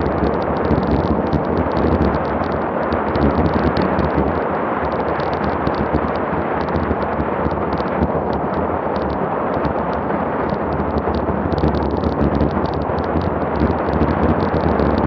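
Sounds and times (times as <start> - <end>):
small crackles: 0.0 - 15.0
wind buffeting a microphone: 0.0 - 15.0.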